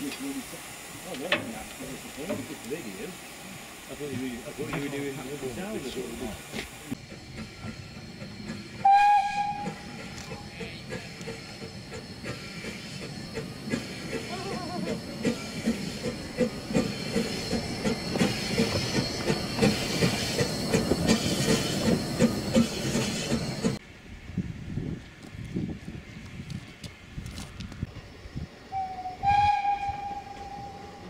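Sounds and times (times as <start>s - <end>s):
steam hissing: 0.0s - 23.8s
steam locomotive exhaust chuffs: 0.0s - 23.8s.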